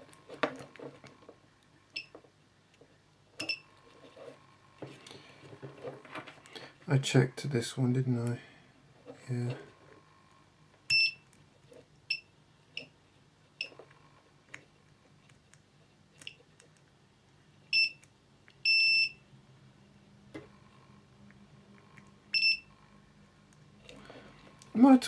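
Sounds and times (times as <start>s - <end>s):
multimeter short high beeps: 10.9s - 11.2s.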